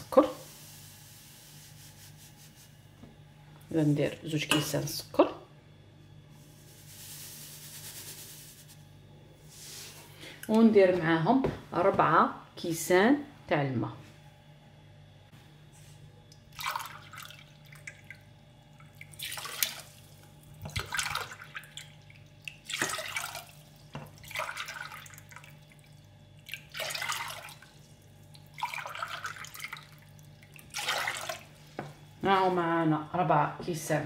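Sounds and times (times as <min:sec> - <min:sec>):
water splashing into saucepan: 0:16.5 - 0:31.5.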